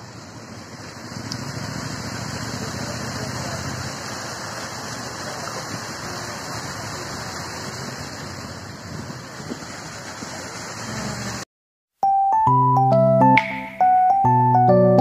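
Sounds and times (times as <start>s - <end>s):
fountain jets splashing into pool: 0.0s - 11.4s.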